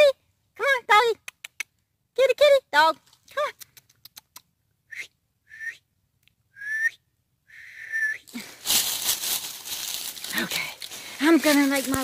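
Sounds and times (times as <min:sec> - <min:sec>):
person whistling: 0:04.9 - 0:05.8, 0:06.5 - 0:08.3
dry leaves rustling: 0:08.3 - 0:12.0.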